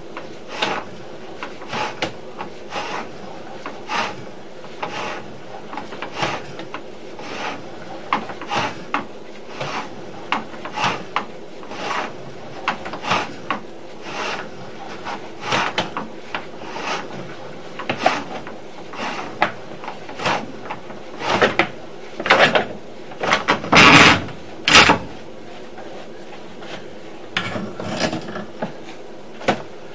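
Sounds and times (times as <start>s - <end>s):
push rod scraping in pipe: 4.8s - 6.6s, 7.2s - 7.6s, 8.4s - 8.9s, 9.5s - 10.0s, 10.6s - 15.9s, 16.6s - 20.5s, 23.2s - 25.1s, 27.4s - 28.5s.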